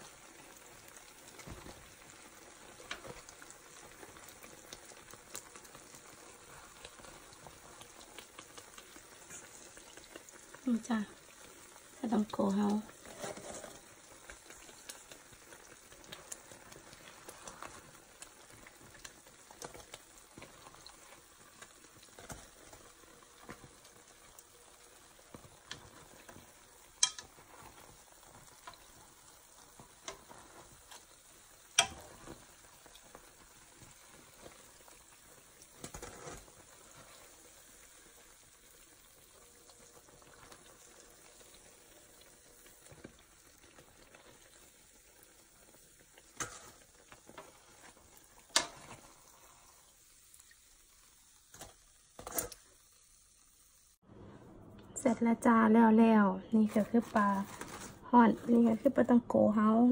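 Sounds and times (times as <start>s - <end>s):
dough sizzling in oil: 0.0s - 54.0s, 55.0s - 59.9s
metal tongs clicking: 27.0s - 27.3s.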